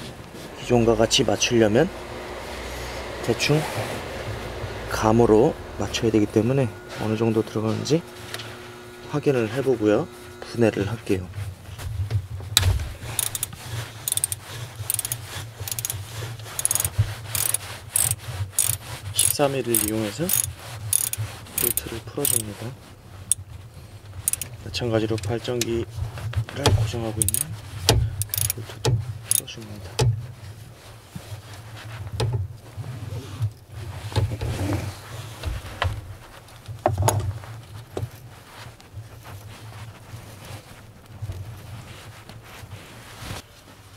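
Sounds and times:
low steady hum: 0.0 - 29.5
ratchet wrench clicking: 13.0 - 22.5, 24.2 - 24.6, 27.2 - 27.5, 28.1 - 28.6, 29.3 - 29.5.

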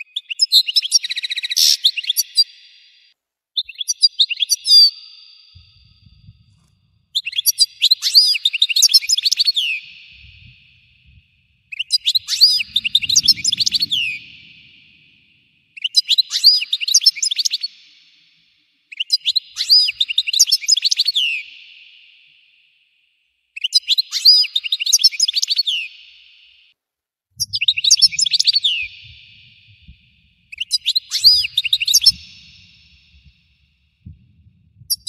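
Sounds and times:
goldfinch twittering song: 27.4 - 33.4.

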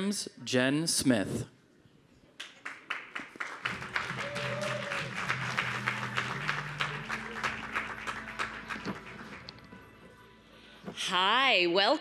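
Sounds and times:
audience applauding: 2.4 - 9.6
music of held low notes: 3.7 - 11.0.

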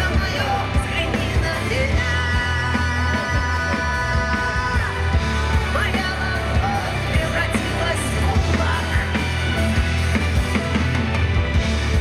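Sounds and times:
live rock band playing: 0.0 - 12.0.

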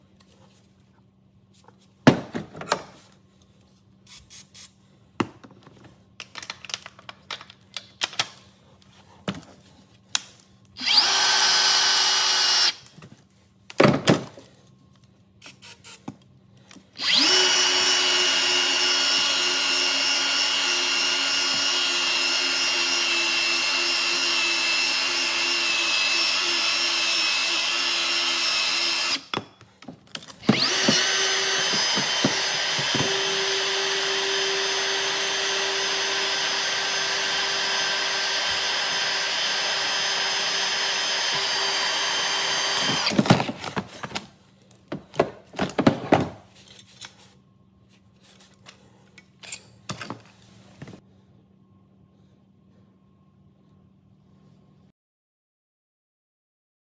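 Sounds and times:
pipe threader motor whining: 17.0 - 29.3, 30.4 - 43.2.

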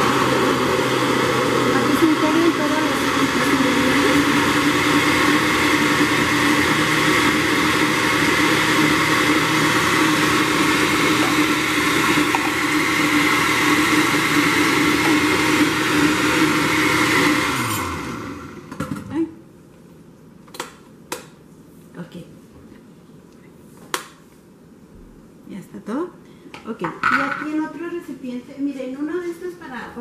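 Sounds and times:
blender motor running: 0.0 - 19.0.

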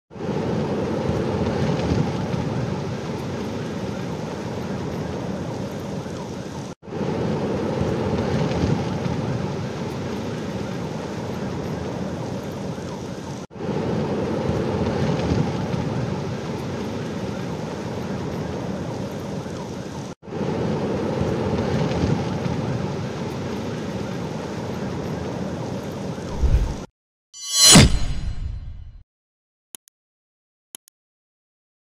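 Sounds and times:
wind rushing: 26.3 - 28.9.

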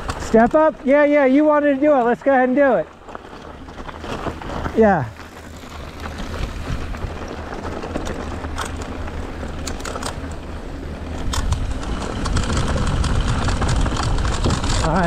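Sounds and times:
stones and bike rattling: 0.0 - 15.0
tyres rolling over dirt: 0.0 - 15.0
wind rumbling on microphone: 0.0 - 15.0.

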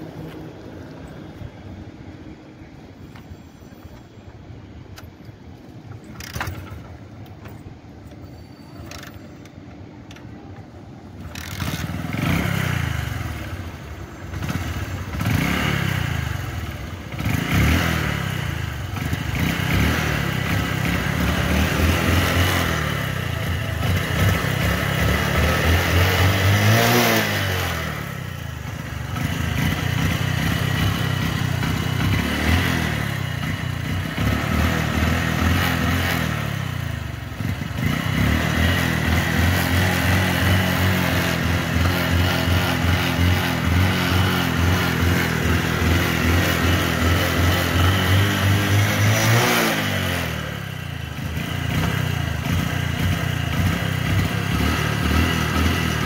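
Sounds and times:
motorcycle kickstart: 6.0 - 7.6, 11.2 - 12.8
motorcycle engine revving: 11.2 - 56.0.

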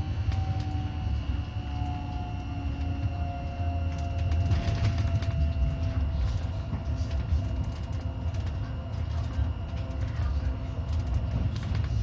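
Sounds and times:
wheels rumbling on rail: 0.0 - 12.0.

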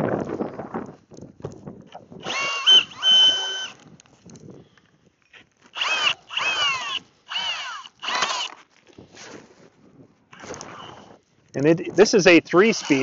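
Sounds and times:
cordless drill motor whining: 2.2 - 3.9, 5.7 - 8.6, 10.4 - 11.2, 12.6 - 13.0.

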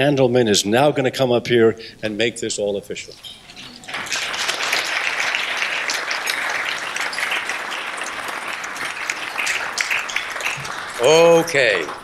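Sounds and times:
audience applauding: 3.7 - 12.0.

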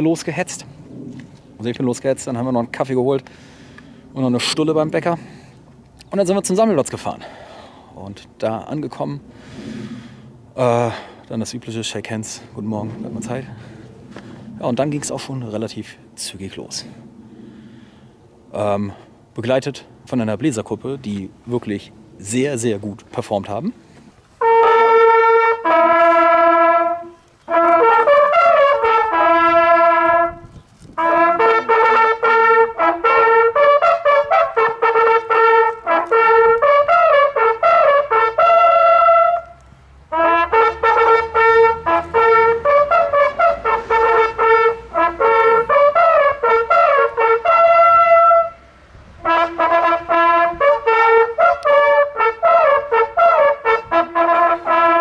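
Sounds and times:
hunting horns fanfare: 24.3 - 55.0.

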